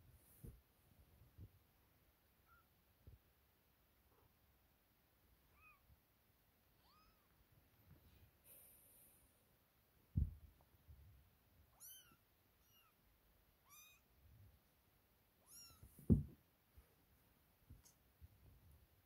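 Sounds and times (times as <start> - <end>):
dull thumps: 15.8 - 16.4.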